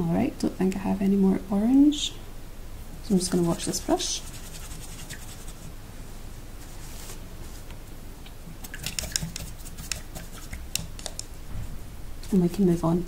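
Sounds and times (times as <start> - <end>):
brush clicking and scraping in jar: 8.6 - 11.3.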